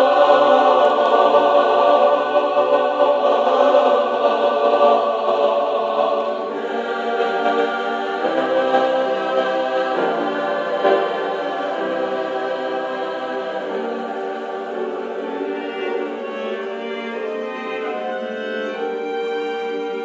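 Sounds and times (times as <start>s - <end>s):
cello: 0.0s - 20.0s
choir singing sustained chords: 0.0s - 20.0s
violin: 0.0s - 20.0s.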